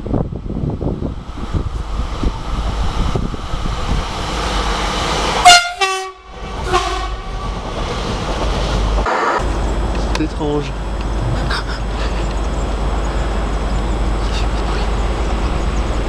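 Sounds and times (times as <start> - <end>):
train passing at speed: 0.0 - 16.0
two-tone train horn: 5.4 - 7.4.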